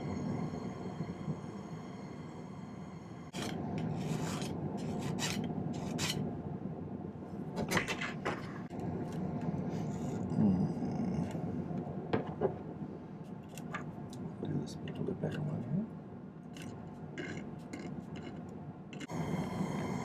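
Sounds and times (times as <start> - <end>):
rubbing and scraping: 3.3 - 6.2.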